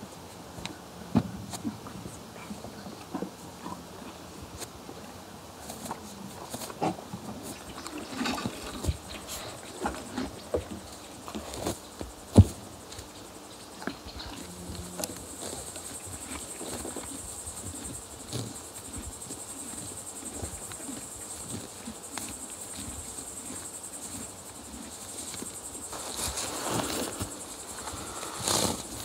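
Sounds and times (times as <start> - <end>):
crickets trilling: 0.0 - 29.0
horse chewing grass: 5.6 - 13.1, 13.7 - 29.0
loud rustle: 25.9 - 29.0.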